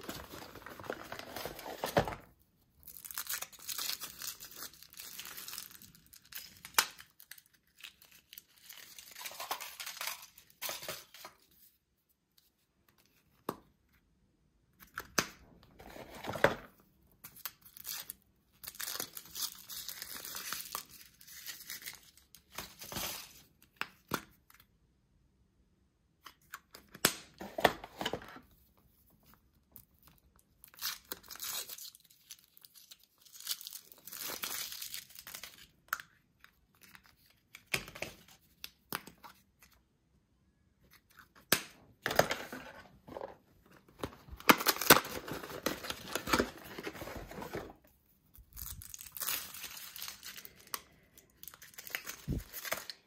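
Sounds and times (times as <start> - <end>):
foil wrappers tearing and crinkling: 48.5 - 50.7.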